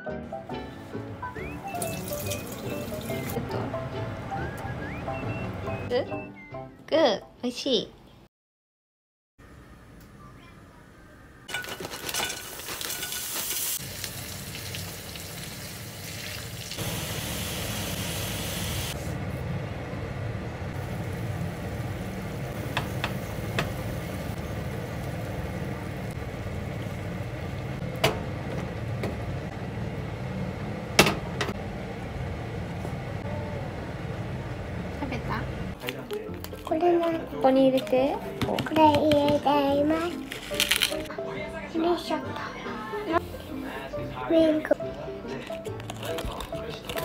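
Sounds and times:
food sizzling in frying pan: 11.5 - 19.1, 20.8 - 27.7.

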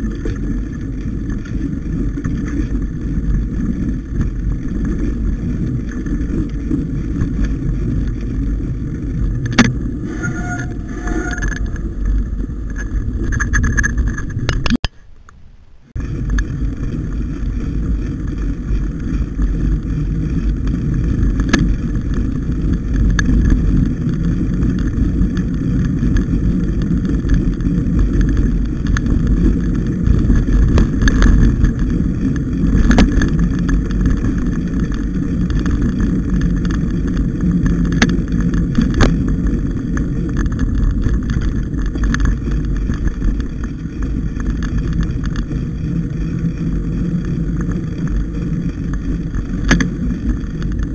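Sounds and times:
bike clicks and knocks: 0.0 - 10.0, 11.4 - 15.4, 16.0 - 50.9
bike tyres rumbling: 0.0 - 50.9
wind buffeting microphone: 15.9 - 50.9.

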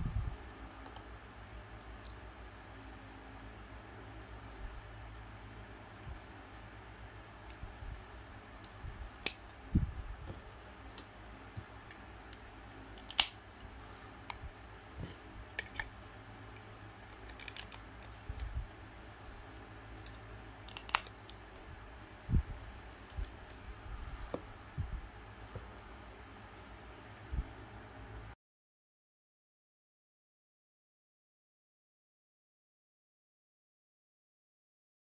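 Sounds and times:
steady low hum: 0.0 - 28.4
plastic parts clicking: 13.0 - 13.4, 17.1 - 18.5, 20.0 - 21.4.

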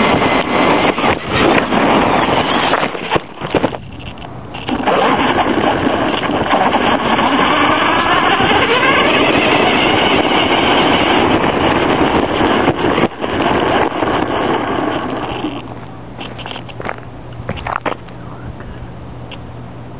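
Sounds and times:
tyre and drivetrain rush: 0.0 - 19.4
faint motor whine: 0.0 - 19.9.

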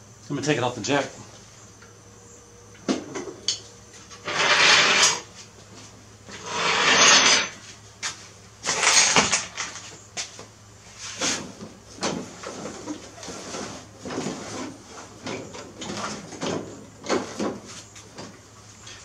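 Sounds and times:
jack scraping slides: 4.1 - 5.3, 6.3 - 7.6.

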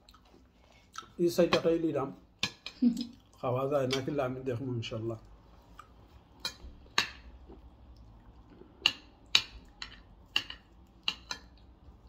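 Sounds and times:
fork clicking on ceramic plate: 8.8 - 11.6.

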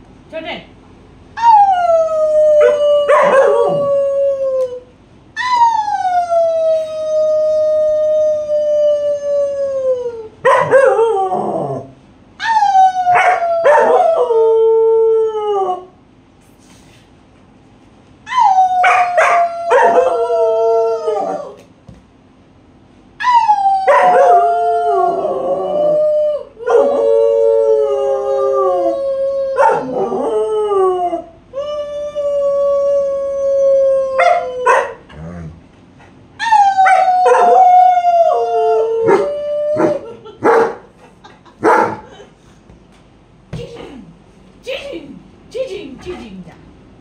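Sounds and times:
dogs howling: 1.4 - 4.8, 8.6 - 15.9, 18.3 - 21.6, 23.2 - 35.6, 36.4 - 40.8.

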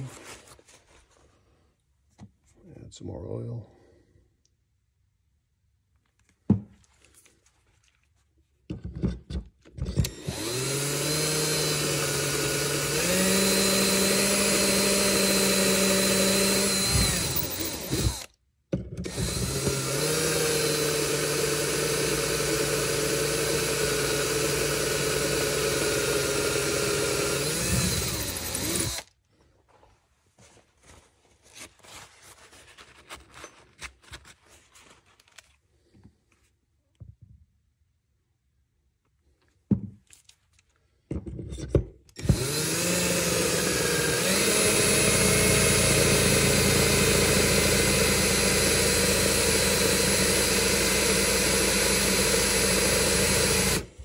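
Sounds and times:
power drill drilling into metal: 10.0 - 18.3, 19.0 - 29.1, 42.2 - 54.0.

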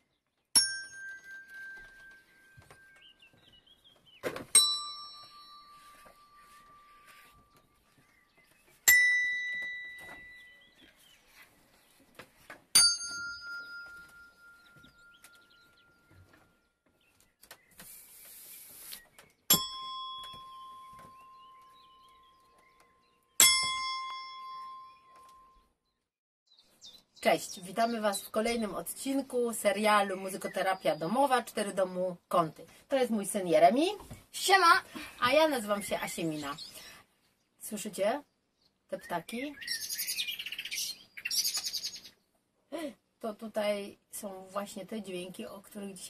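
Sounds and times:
handbells ringing: 0.6 - 2.9, 12.8 - 15.3
short hiss: 17.8 - 19.0.

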